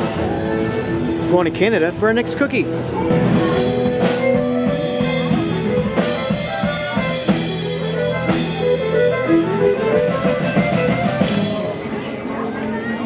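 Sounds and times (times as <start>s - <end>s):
guitar: 0.0s - 13.0s
drum kit: 2.6s - 11.9s.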